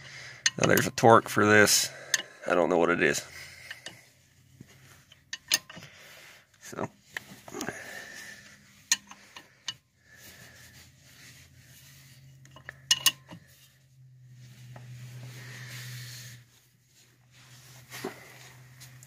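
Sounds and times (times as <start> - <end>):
low steady hum: 0.0 - 19.0
metal tools clinking: 0.4 - 1.0, 5.1 - 5.9, 12.4 - 13.5.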